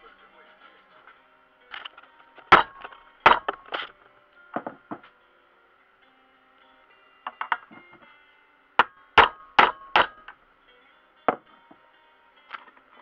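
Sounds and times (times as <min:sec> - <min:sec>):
hammer tapping on metal: 0:08.8 - 0:10.4.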